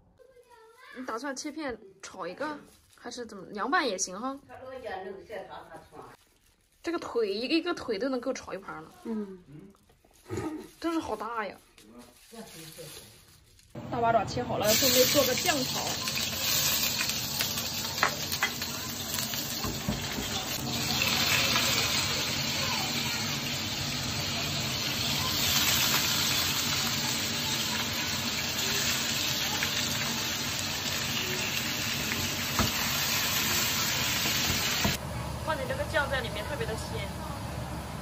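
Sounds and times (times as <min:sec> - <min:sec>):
food sizzling in a pan: 0:14.0 - 0:35.0.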